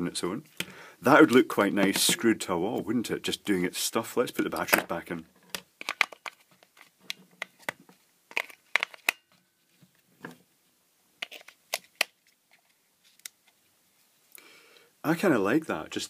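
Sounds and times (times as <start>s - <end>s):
plastic casing rustling: 5.5s - 10.4s, 11.2s - 13.6s.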